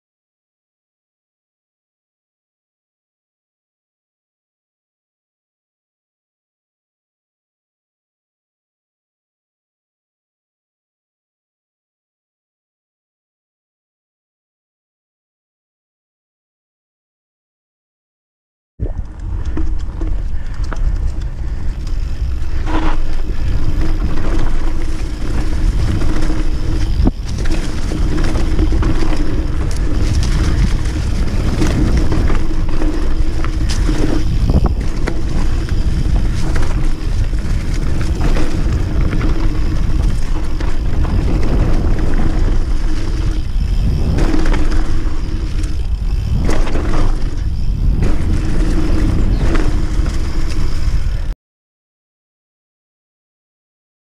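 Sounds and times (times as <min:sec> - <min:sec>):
wind rumble on microphone: 0:18.8 - 0:51.4
bike rattling over bumps: 0:18.9 - 0:51.4
tyres rolling on dirt: 0:19.0 - 0:51.3.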